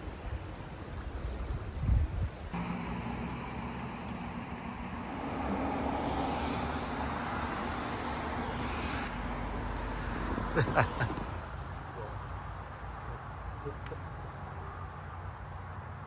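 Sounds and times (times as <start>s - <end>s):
vehicle engine droning: 2.6s - 11.5s.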